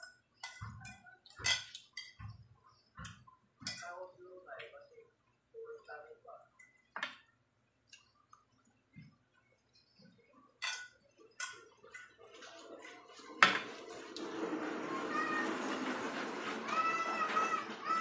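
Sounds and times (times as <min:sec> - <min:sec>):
fork clinking on ceramic plate: 0:10.6 - 0:12.2.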